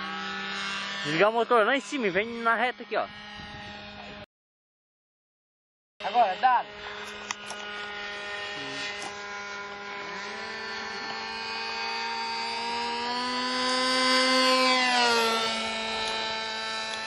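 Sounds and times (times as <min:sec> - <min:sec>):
model airplane engine droning: 0:00.0 - 0:04.3, 0:06.0 - 0:17.0.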